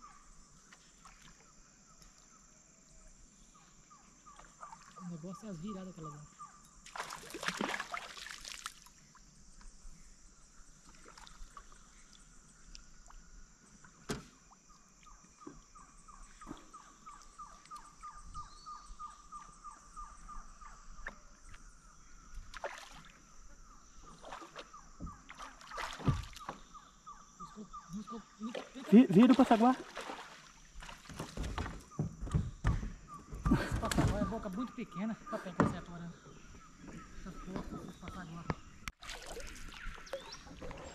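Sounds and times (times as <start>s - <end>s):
water sloshing against paddle: 6.8s - 8.8s, 10.7s - 21.8s, 22.4s - 27.0s, 28.0s - 40.9s
knocks on kayak: 31.2s - 34.4s.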